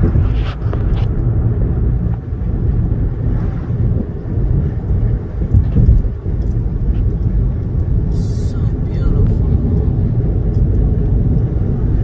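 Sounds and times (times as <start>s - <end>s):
car interior road and engine noise: 0.0s - 12.0s.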